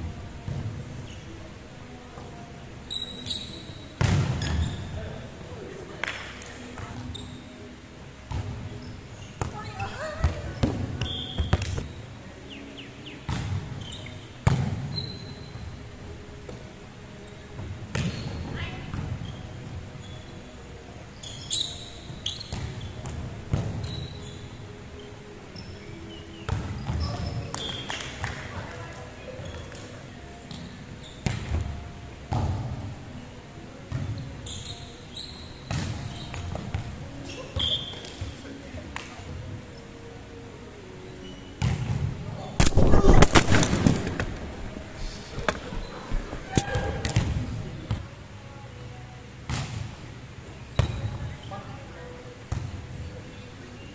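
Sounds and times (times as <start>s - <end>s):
sneaker squeaks on court: 2.9s - 5.0s, 7.0s - 7.6s, 10.6s - 12.0s, 13.8s - 15.6s, 21.2s - 24.6s, 25.6s - 27.9s, 33.9s - 38.2s.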